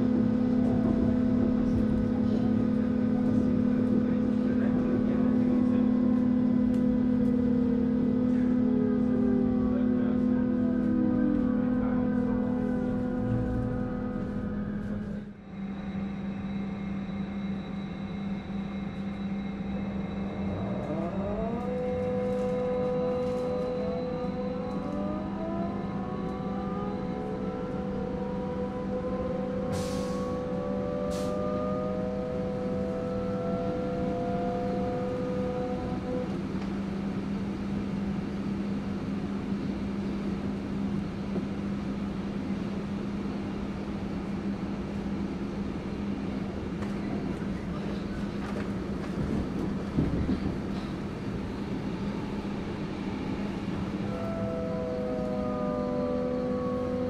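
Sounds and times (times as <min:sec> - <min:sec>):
train traction hum: 0:00.0 - 0:57.0
whining tones rising in pitch: 0:05.0 - 0:36.4, 0:51.4 - 0:57.0.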